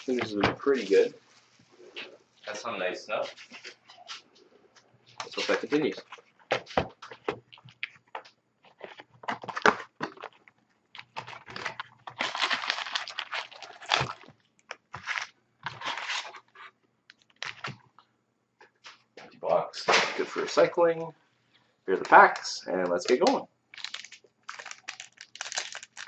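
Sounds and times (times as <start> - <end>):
plastic wrap crinkling and tearing: 8.7 - 17.7, 22.0 - 26.0
foil packs rustling: 11.0 - 14.3, 14.9 - 16.5, 21.9 - 26.0.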